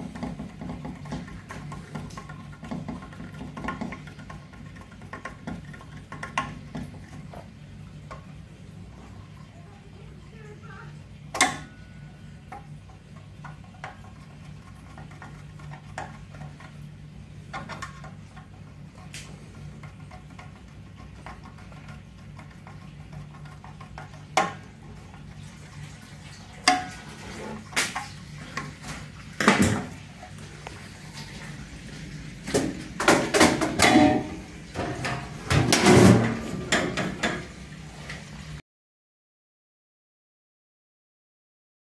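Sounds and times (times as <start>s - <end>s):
metal clanks and knocks: 32.6s - 37.5s.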